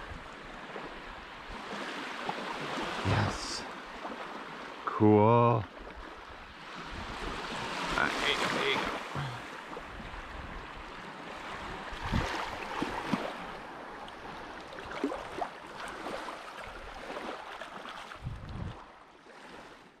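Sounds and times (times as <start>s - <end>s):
wind rumble on microphone: 0.0s - 1.6s, 6.3s - 7.9s, 9.8s - 11.0s, 11.6s - 13.6s, 18.2s - 18.9s
seawater lapping at shoreline: 0.0s - 20.0s.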